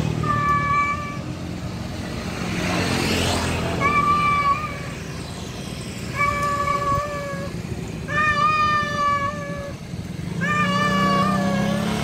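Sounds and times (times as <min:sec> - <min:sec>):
cat meowing: 0:08.1 - 0:09.7, 0:10.4 - 0:11.9.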